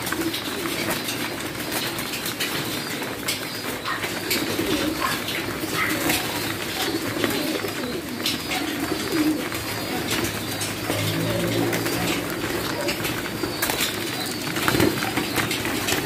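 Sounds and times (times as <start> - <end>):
pigeons cooing: 0.0 - 16.0.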